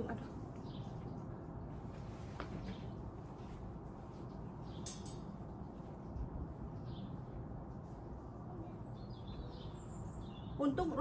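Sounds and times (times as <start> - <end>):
faint bird chirps: 8.4 - 11.0.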